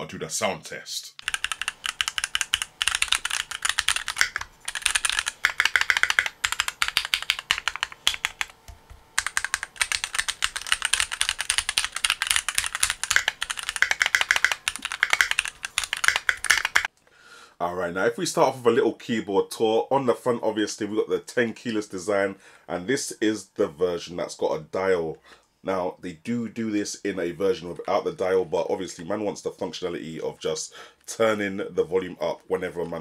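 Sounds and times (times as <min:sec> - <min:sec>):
mechanical keyboard typing: 0:01.2 - 0:16.9.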